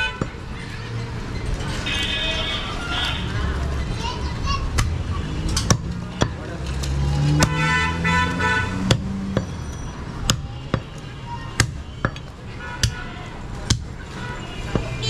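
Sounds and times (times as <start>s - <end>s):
cleaver chopping meat and bone: 5.6s - 6.5s, 7.3s - 7.7s, 8.8s - 9.5s, 10.2s - 11.0s, 11.6s - 14.0s.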